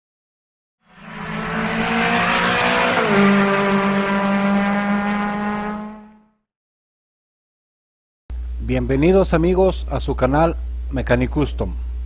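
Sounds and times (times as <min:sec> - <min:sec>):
car engine: 0:00.8 - 0:06.3.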